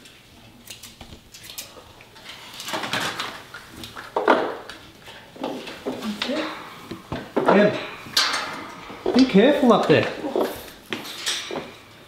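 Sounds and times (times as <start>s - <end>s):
metal bird cage rattling: 6.3s - 12.0s.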